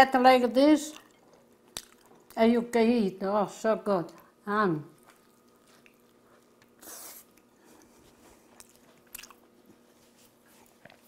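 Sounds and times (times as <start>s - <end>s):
person chewing: 0.9s - 2.4s, 4.9s - 11.0s
person biting bread: 5.1s - 9.6s.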